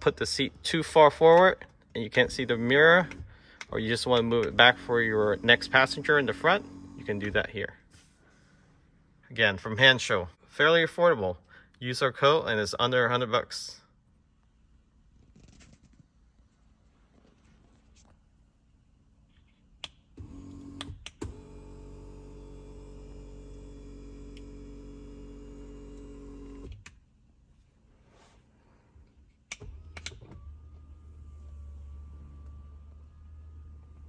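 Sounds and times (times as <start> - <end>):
seat motor humming: 2.2 - 7.5, 20.2 - 26.8, 29.7 - 34.0
lower motor hum: 4.0 - 7.5, 20.3 - 26.7.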